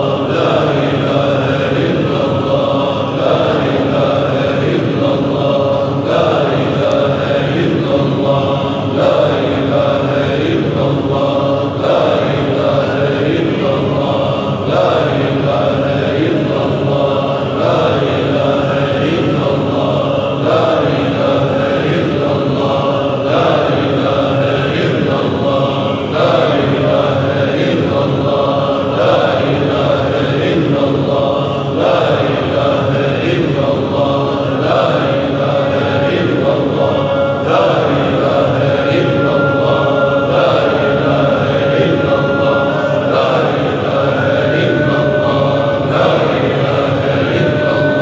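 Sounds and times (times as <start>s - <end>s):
men chanting together: 0.0s - 48.0s.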